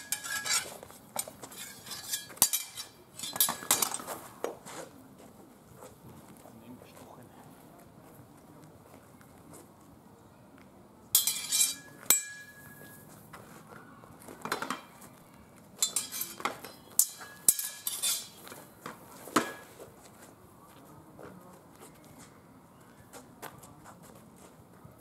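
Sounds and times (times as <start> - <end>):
metal blades clashing: 0.0 - 4.1, 11.2 - 12.8, 15.8 - 18.5.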